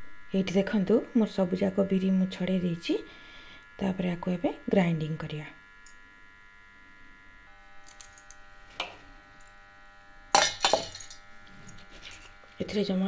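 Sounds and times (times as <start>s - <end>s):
faint steady hum: 0.0s - 13.0s
grains clattering in metal jar: 10.4s - 12.3s.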